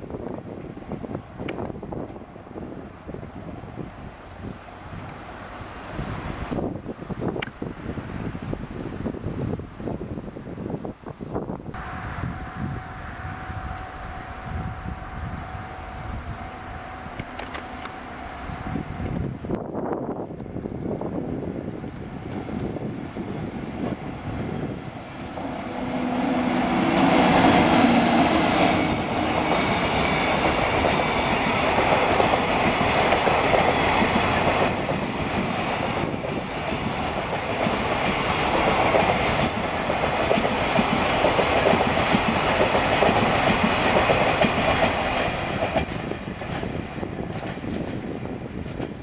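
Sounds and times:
train wheels clattering: 26.6 - 49.0
wheel squeal: 29.5 - 30.6.

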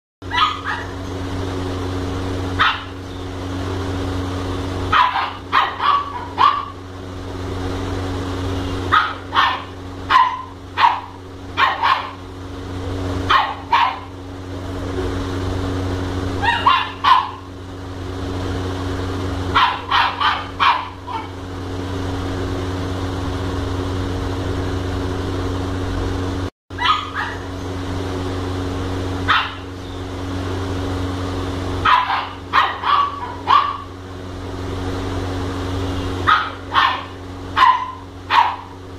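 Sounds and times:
steady low hum: 0.2 - 38.9
puppy barking: 0.3 - 1.2, 2.6 - 3.0, 4.9 - 6.8, 8.9 - 12.3, 13.3 - 14.2, 16.4 - 17.5, 19.5 - 21.4, 26.8 - 27.5, 29.3 - 29.7, 31.8 - 34.0, 36.2 - 38.8.

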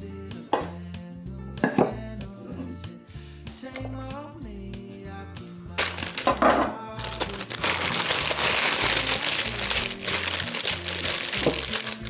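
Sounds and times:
background music: 0.0 - 12.0
plastic bag crinkling loudly: 5.8 - 12.0.

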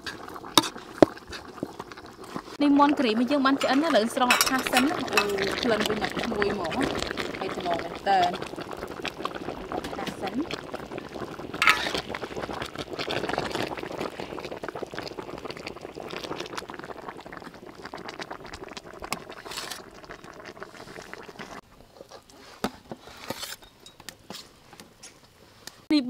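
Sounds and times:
curry simmering and bubbling: 0.0 - 25.9
metal utensil scraping and clicking: 3.5 - 5.6, 11.6 - 12.0, 23.1 - 25.2.

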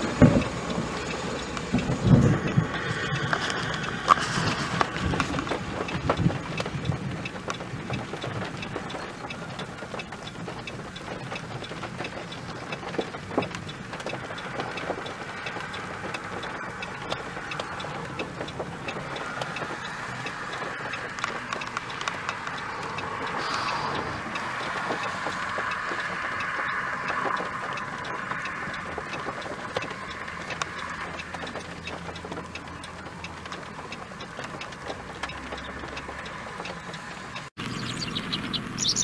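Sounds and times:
small clicks: 0.0 - 37.9
gusty wind buffeting microphone: 0.0 - 39.0.

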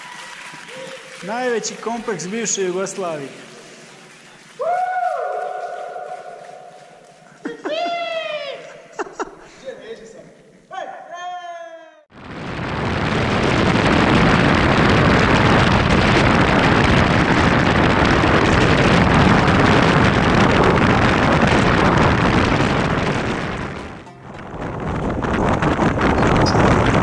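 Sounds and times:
wind rushing on microphone: 12.2 - 27.0.

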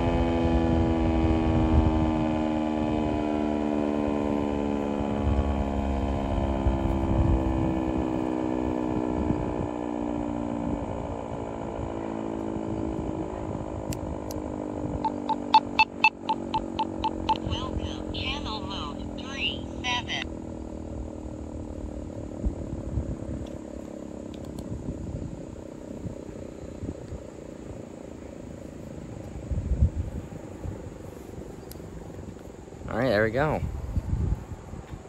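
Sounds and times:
warning siren winding down: 0.0 - 20.2.

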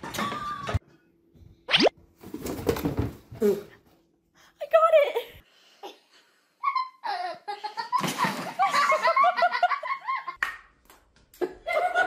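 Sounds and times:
people laughing: 6.6 - 10.4, 11.4 - 12.0.

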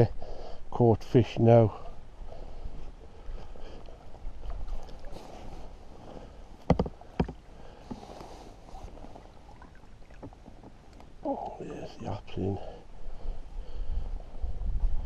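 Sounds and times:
water sloshing and splashing: 4.0 - 12.4
wind rumble on microphone: 12.9 - 15.0.

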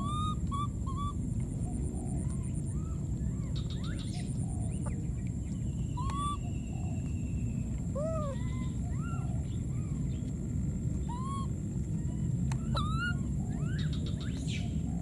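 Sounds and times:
baby monkeys squeaky coo calls: 0.0 - 1.2, 5.9 - 6.4, 7.9 - 10.0, 11.0 - 14.4
low background rumble: 0.0 - 15.0.

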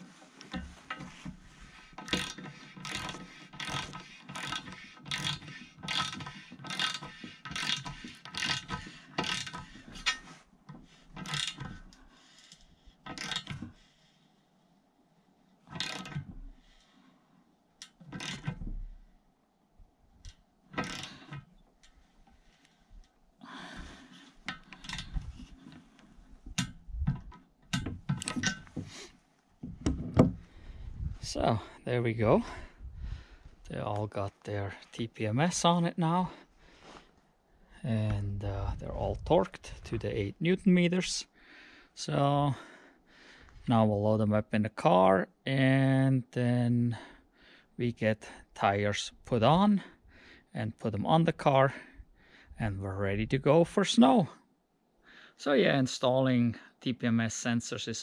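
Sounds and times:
scattered clicks and knocks: 0.4 - 12.0, 15.7 - 16.4, 24.4 - 29.0, 29.6 - 30.4
ratcheting torque wrench clicking: 2.0 - 10.3, 11.2 - 11.9, 12.5 - 13.7, 15.7 - 16.4, 17.8 - 18.6, 20.2 - 21.4, 24.5 - 25.4.

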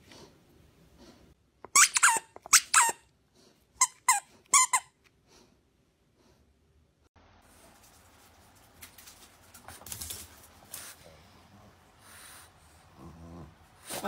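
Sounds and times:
squeaky toy squeaking: 1.7 - 3.1, 3.8 - 5.0.

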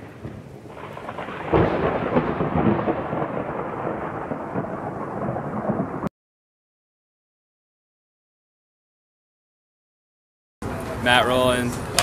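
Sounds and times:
steady rain: 0.0 - 6.1
thunder clap rumbling: 0.0 - 6.1.

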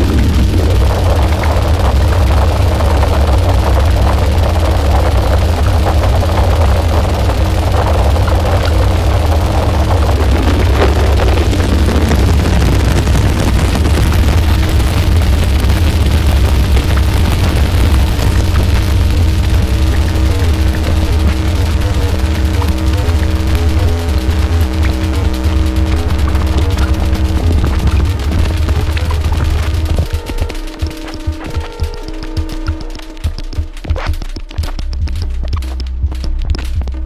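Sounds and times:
crackling glitchy noise: 0.0 - 37.0
deep synthesizer drone: 0.0 - 37.0
held synth tones: 14.5 - 34.2.

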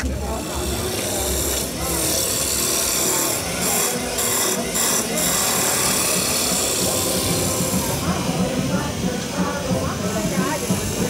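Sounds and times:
music: 0.0 - 11.0
lathe gouge shaving wood: 0.1 - 8.0.

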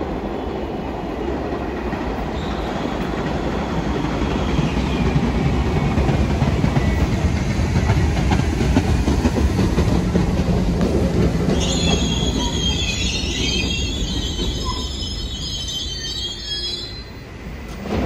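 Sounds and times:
subway train rumbling: 0.0 - 18.0
high wavering squeal: 11.5 - 17.3.

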